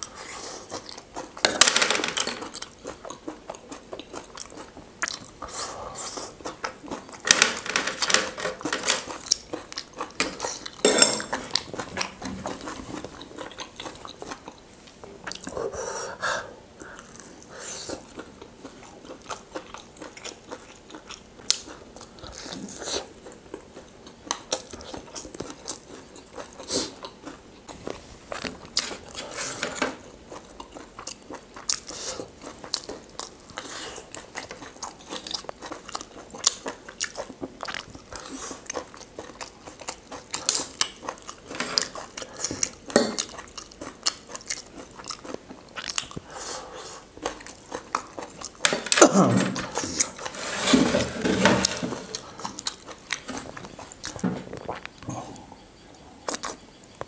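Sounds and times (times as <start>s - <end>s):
chewing and crunching food: 0.0s - 15.6s, 16.8s - 57.0s
plates and cutlery clinking: 10.2s - 11.6s, 48.6s - 52.2s.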